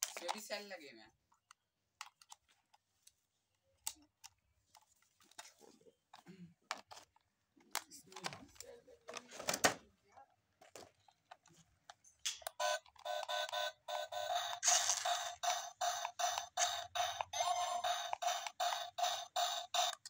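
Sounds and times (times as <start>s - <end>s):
plastic clicks and rattles: 0.0s - 0.6s.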